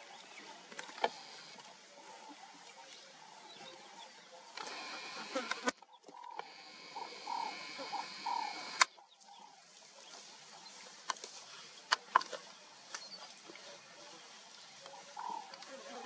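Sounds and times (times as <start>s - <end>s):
croaking animal calls: 4.6s - 8.9s
steady high buzz: 6.4s - 8.9s
sharp snaps: 7.0s - 8.9s.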